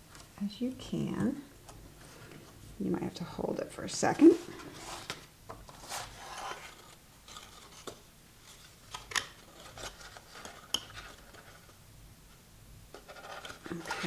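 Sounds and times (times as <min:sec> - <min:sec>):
rustling of card stock: 0:04.2 - 0:11.8, 0:12.9 - 0:14.0.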